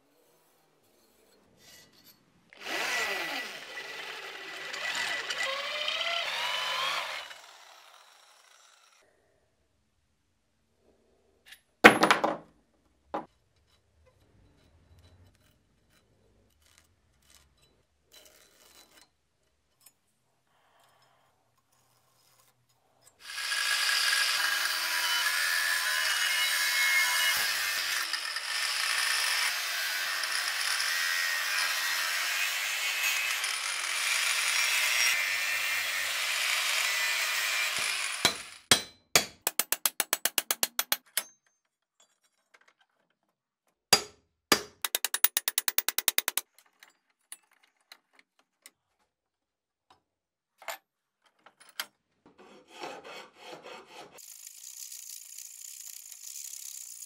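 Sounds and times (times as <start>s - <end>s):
power tool working metal: 2.6s - 9.0s, 23.2s - 41.0s
rapid clicking: 44.8s - 46.4s.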